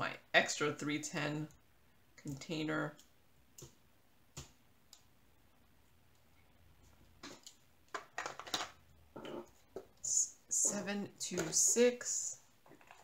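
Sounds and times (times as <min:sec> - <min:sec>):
plastic containers clicking: 0:07.3 - 0:08.8.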